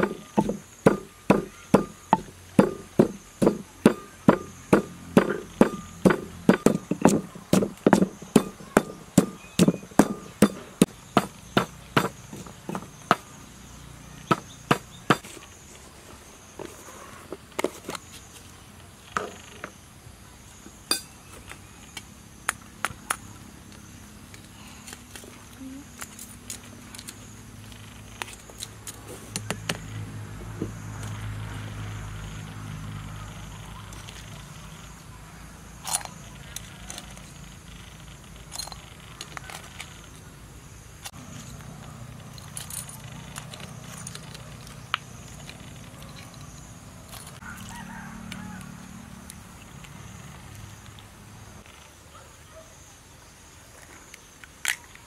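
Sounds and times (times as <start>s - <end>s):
pestle pounding in clay mortar: 0.0s - 13.4s, 14.2s - 15.3s.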